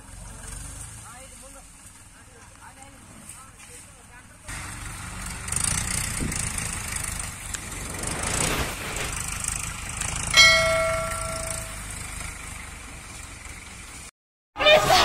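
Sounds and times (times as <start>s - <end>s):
tractor engine rumbling: 1.7s - 15.0s
metallic bell-like ring: 10.3s - 12.0s.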